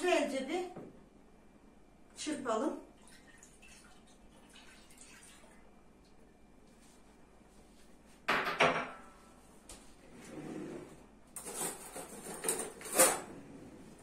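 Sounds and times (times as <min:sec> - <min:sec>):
kitchenware knocks and scrapes: 0:08.3 - 0:09.2, 0:11.4 - 0:13.5.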